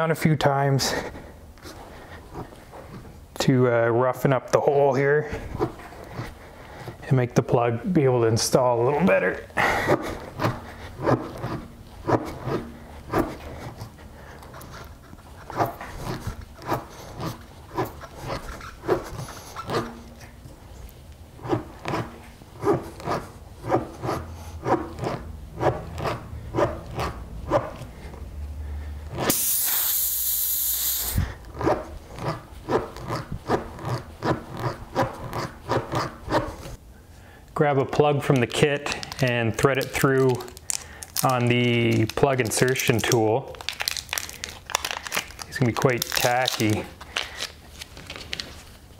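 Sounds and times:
rasp tool scraping in tire: 9.9 - 13.9, 14.5 - 20.2, 21.4 - 27.9
air hissing from tire: 29.3 - 31.3.

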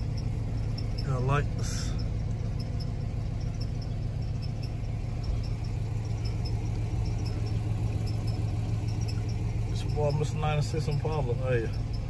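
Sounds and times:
car engine idling: 0.0 - 12.0
faint high ticking: 0.0 - 12.0.

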